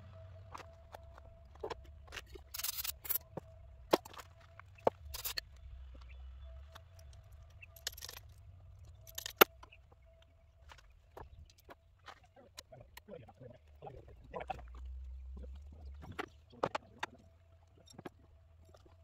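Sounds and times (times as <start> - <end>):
wrench clinking on metal: 2.2 - 3.2, 7.6 - 9.6.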